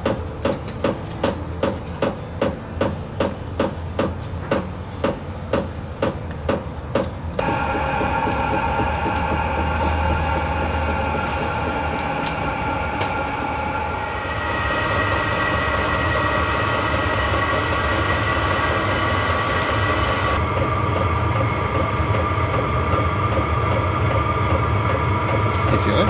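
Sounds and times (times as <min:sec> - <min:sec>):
heater fan whine: 0:00.0 - 0:26.0
fuel pump ticking: 0:04.0 - 0:26.0
low rumble: 0:07.4 - 0:26.0.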